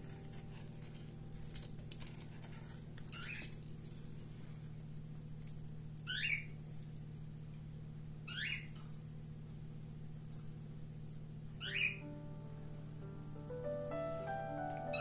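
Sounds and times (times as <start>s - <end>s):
music: 0.0s - 2.5s, 11.7s - 15.0s
faint steady hum: 0.0s - 15.0s.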